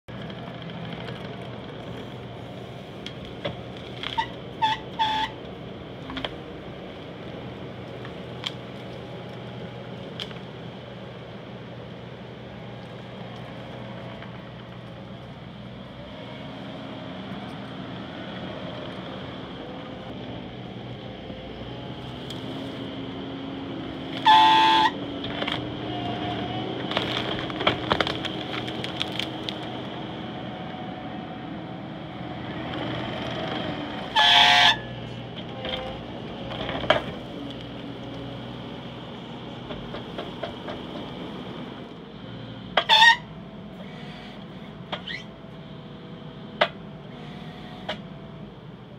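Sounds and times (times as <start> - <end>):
skid steer engine running: 0.1 - 48.9
loud honk-like tones: 4.2 - 5.4, 24.2 - 25.0, 34.1 - 35.0, 42.8 - 43.3.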